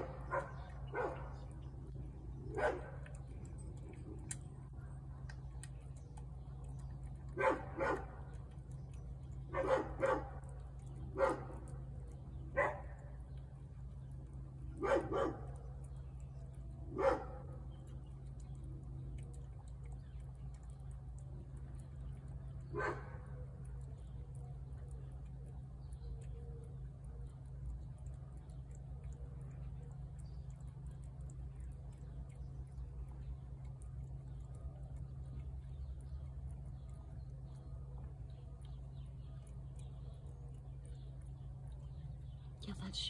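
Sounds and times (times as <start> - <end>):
dog barking: 0.0 - 1.4, 2.5 - 3.1, 7.3 - 8.2, 9.5 - 10.5, 11.2 - 11.6, 12.6 - 12.9, 14.8 - 15.6, 17.0 - 17.4, 22.7 - 23.2
steady low hum: 0.0 - 43.0.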